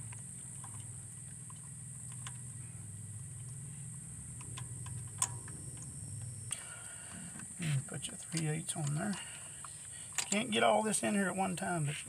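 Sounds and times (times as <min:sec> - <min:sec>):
low hum: 0:00.0 - 0:10.3
metal socket extensions clicking: 0:10.1 - 0:10.5.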